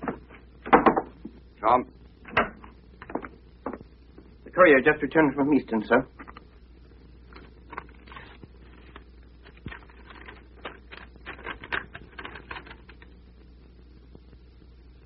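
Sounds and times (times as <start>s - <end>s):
low steady hum: 0.0s - 15.0s
small clicks and rustles: 6.2s - 13.5s.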